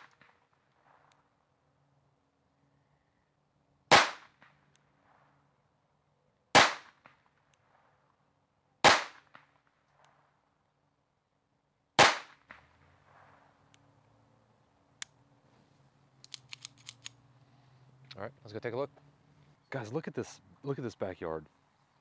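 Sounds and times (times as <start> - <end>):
pistol shots: 3.9 - 4.6, 6.5 - 7.2, 8.8 - 10.1, 12.0 - 13.5.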